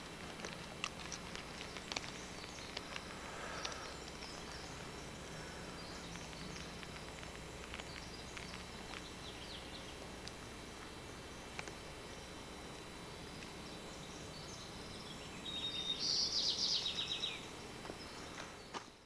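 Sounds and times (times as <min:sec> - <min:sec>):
small clicks and ticks: 0:00.0 - 0:14.8
steady low hiss: 0:00.0 - 0:19.0
faint bird chirps: 0:01.5 - 0:19.0.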